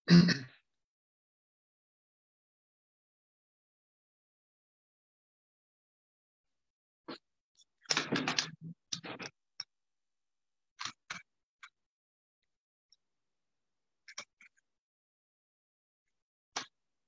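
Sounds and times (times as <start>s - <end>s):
paper rustling and shuffling: 7.9s - 9.3s.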